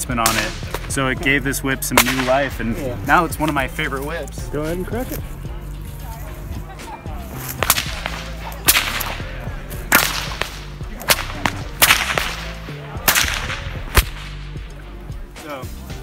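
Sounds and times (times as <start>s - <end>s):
whip cracks: 0.2s - 1.0s, 2.0s - 2.5s, 7.4s - 9.3s, 9.9s - 14.5s.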